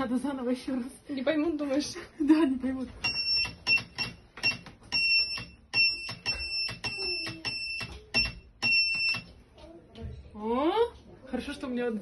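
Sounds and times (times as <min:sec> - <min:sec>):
morse code beeps: 0:03.0 - 0:09.3.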